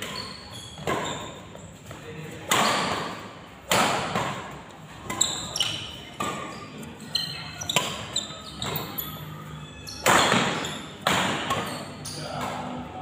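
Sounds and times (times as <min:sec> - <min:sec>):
sports shoes squeaking on court: 0:00.0 - 0:03.3, 0:04.1 - 0:12.8
racket hitting shuttlecock: 0:02.5 - 0:06.5, 0:07.6 - 0:08.9, 0:10.0 - 0:12.7.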